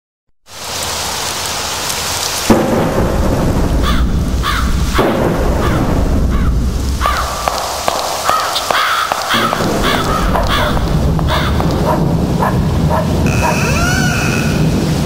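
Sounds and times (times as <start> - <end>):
steady rain: 0.5 - 15.0
thunder: 2.5 - 13.6
crows cawing: 3.8 - 4.8, 5.6 - 12.0, 13.3 - 14.7.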